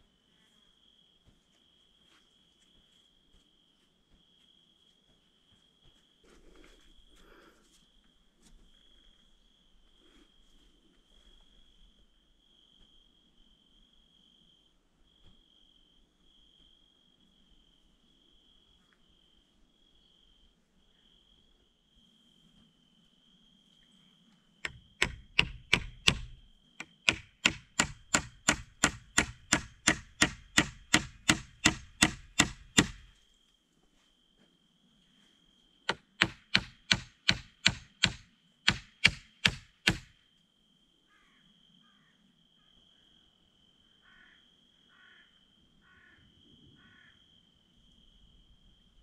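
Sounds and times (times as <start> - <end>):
crickets chirring: 11.2 - 49.0
hatchet striking wooden pole: 24.7 - 33.1, 35.9 - 40.1.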